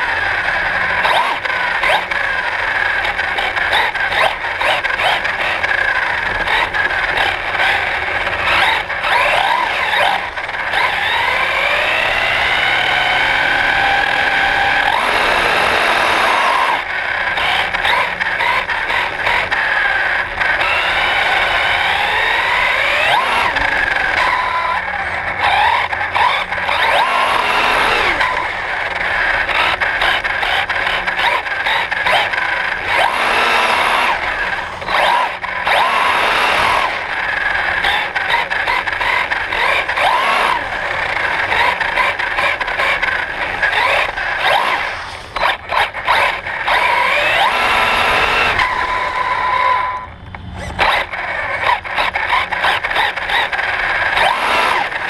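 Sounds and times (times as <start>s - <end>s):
electric motor whine: 0.0s - 55.0s
tyres rushing on concrete: 13.5s - 49.4s.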